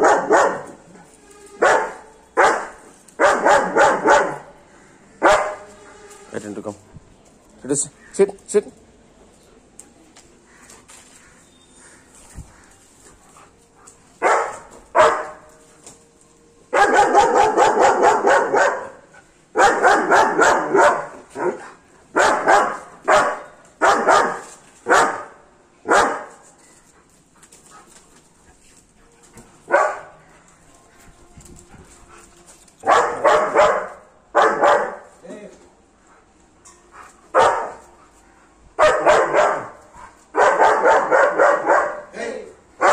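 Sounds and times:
dog barking loudly: 0.0 - 0.8, 1.6 - 4.6, 5.2 - 5.7, 14.2 - 15.5, 16.8 - 26.4, 29.7 - 30.2, 32.8 - 35.1, 37.3 - 37.8, 38.8 - 42.1.

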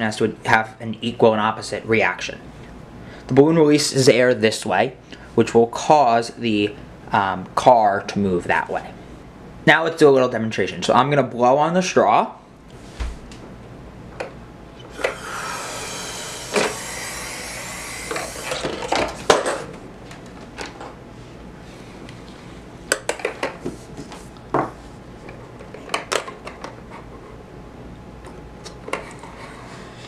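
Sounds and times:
air hissing through a straw: 14.9 - 18.7.

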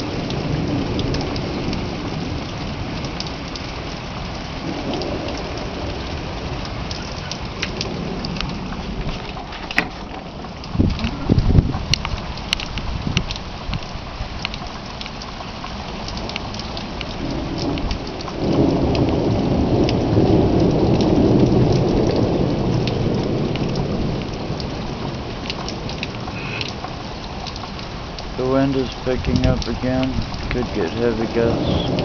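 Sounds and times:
rain pattering: 0.0 - 32.0
thunder rolling: 4.5 - 13.3, 17.0 - 26.5, 28.6 - 32.0.

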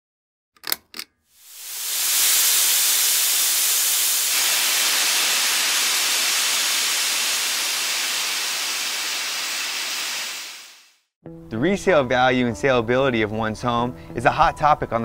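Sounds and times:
steam hissing: 1.4 - 11.0.

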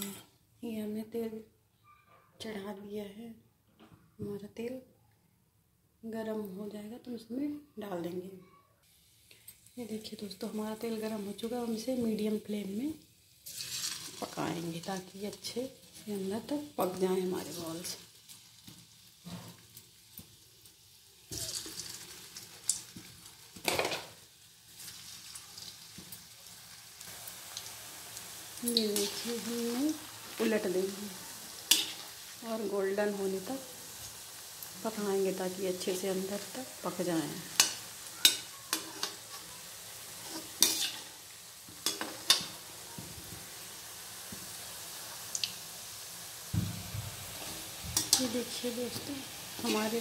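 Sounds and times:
metal spoon scraping a pan: 0.0 - 0.3, 13.4 - 14.3, 28.7 - 29.7, 31.5 - 32.4, 37.0 - 42.6, 47.3 - 50.0
food sizzling in hot oil: 8.9 - 50.0.

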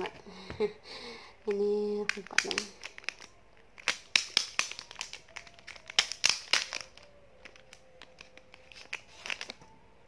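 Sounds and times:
plastic packaging crinkling: 2.0 - 9.8.

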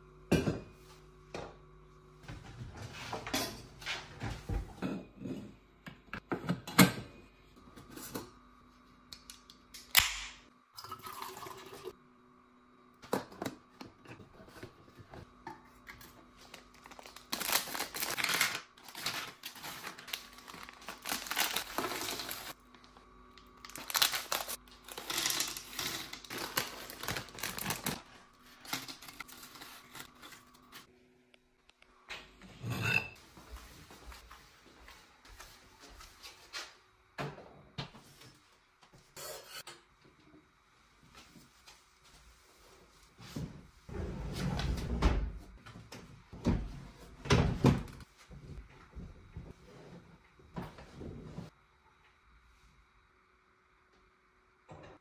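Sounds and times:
snack packets crinkling and tearing: 16.5 - 22.6, 23.4 - 28.0.

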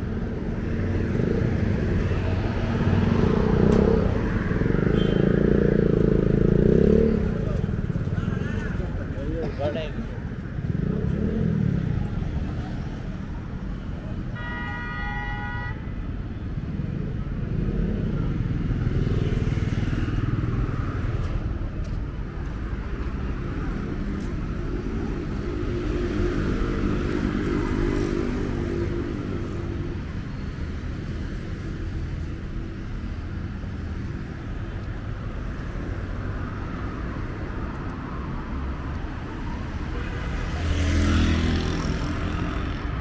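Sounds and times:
road traffic passing: 0.0 - 43.0
vehicle horn blast: 4.9 - 5.3, 14.4 - 15.8.

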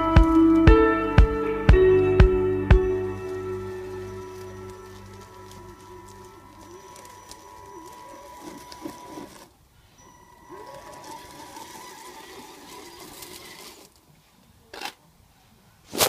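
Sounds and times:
electric motor and gearbox whine: 1.9 - 14.0.

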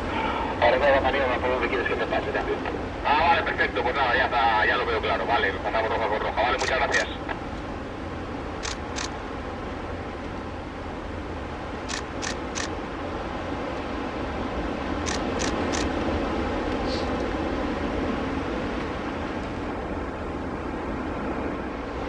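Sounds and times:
steady low rumble: 0.0 - 22.0
camera shutter clicks: 6.6 - 7.1, 8.6 - 9.1, 11.9 - 12.7, 15.1 - 15.9.

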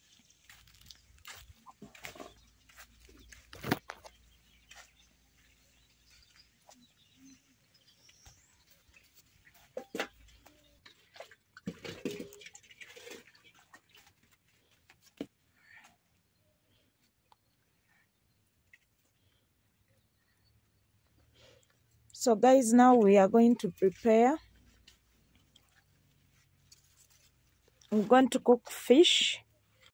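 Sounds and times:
footsteps in flip-flops: 0.0 - 7.0
metal pots knocking: 11.6 - 13.5.

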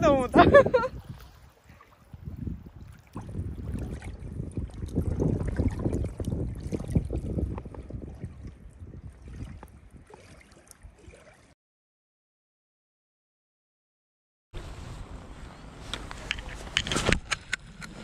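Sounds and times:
water sloshing and splashing: 0.0 - 11.6.

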